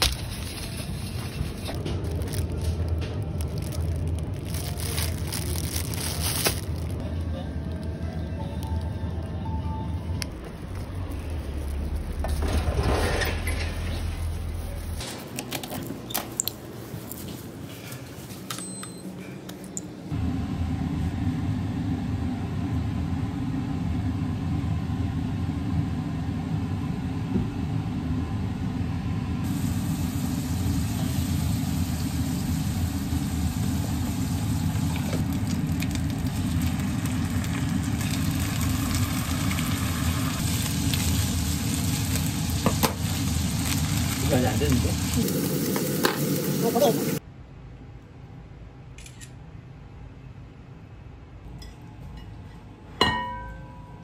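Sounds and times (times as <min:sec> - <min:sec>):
steady low hum: 0:00.0 - 0:15.4
chicken sizzling in a frying pan: 0:29.5 - 0:47.2.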